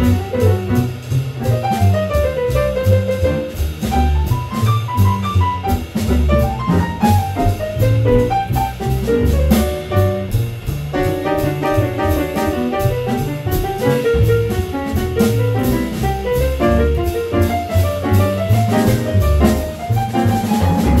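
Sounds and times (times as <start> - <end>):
drum kit with cymbal strikes: 0.0 - 21.0
piano melodic lines: 0.0 - 21.0
plucked upright bass: 0.0 - 21.0.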